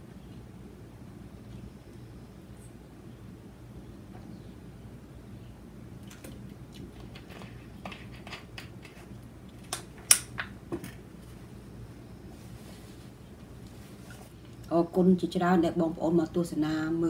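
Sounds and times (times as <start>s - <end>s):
low steady hum: 0.0s - 17.0s
chopsticks and bowls clicking: 9.7s - 10.5s.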